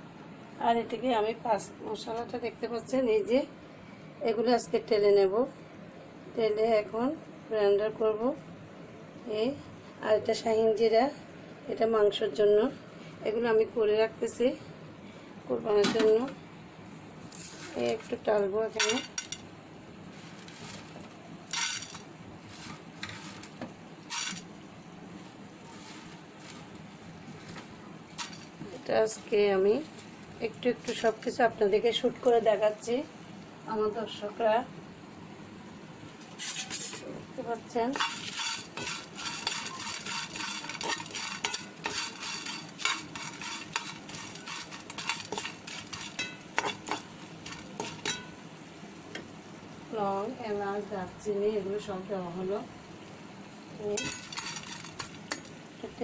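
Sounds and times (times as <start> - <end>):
spatula scraping spices in pan: 20.1 - 21.0, 21.6 - 24.5, 25.6 - 27.6, 37.9 - 48.4, 54.0 - 55.5.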